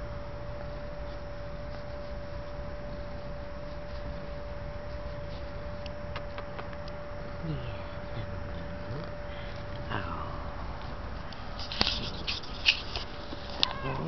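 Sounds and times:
steady high-pitched tone: 0.0s - 14.0s
cat purring: 1.0s - 11.3s.

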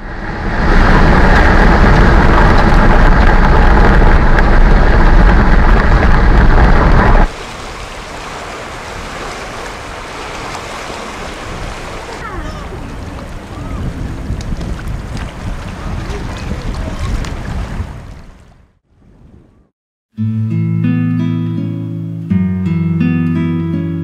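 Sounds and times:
car road and engine noise: 0.0s - 13.8s
sea waves: 0.0s - 18.8s
wind: 0.0s - 19.7s.

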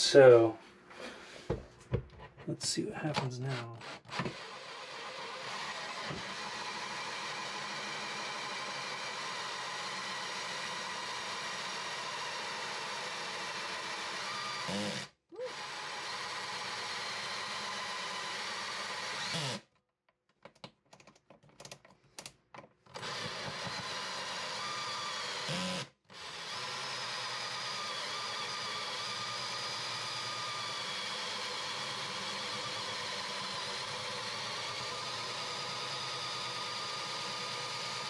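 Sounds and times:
cordless drill cutting wood: 3.1s - 19.7s, 22.9s - 38.0s
drill trigger blips: 22.9s - 38.0s.

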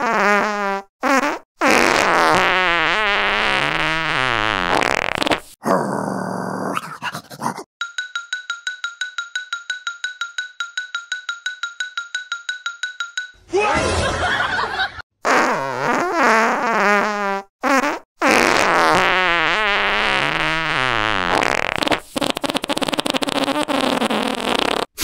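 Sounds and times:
fart-like sputtering noises: 0.0s - 5.8s, 15.2s - 25.0s.

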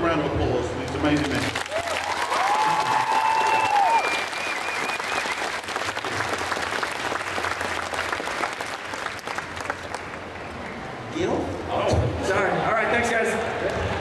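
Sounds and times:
audience applauding: 0.9s - 10.8s.

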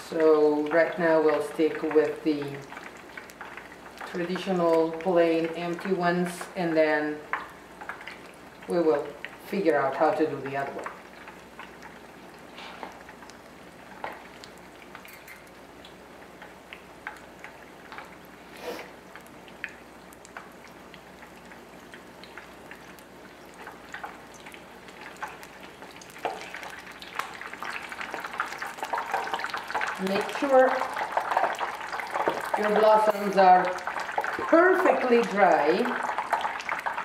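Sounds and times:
frying sizzle with pops: 0.0s - 37.0s
fork turning food in oil: 14.9s - 15.6s.

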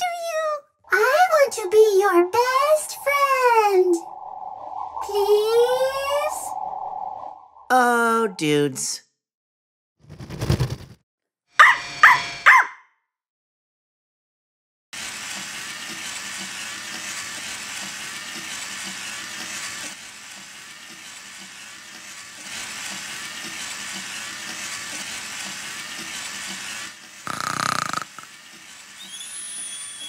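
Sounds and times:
robot toy motors whirring: 15.0s - 30.0s.

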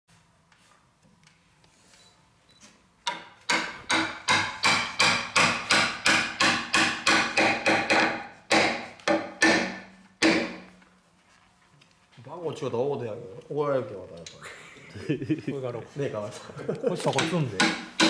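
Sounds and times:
hammer striking timber: 3.0s - 10.7s, 17.1s - 18.0s.

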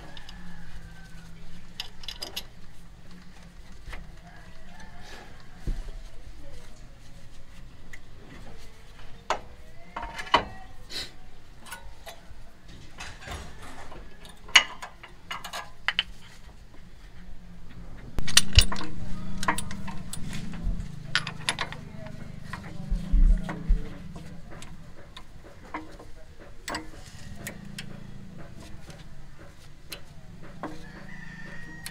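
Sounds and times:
low hum: 17.4s - 25.8s
metal tools clinking: 18.2s - 22.5s.

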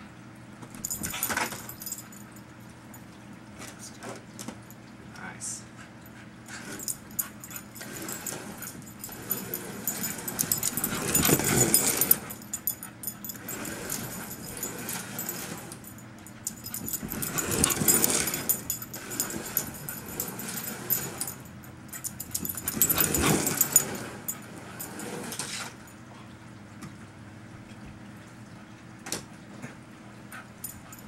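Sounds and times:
slot cars whirring past: 13.4s - 15.8s.

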